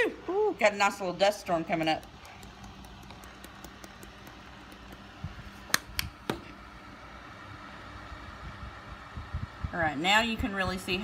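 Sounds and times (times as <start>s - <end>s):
electric fan running: 0.0s - 11.0s.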